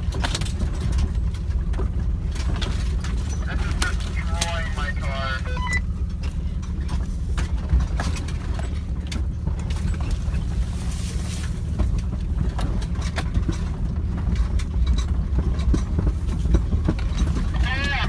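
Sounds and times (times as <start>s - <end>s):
car cabin rumble: 0.0s - 18.0s.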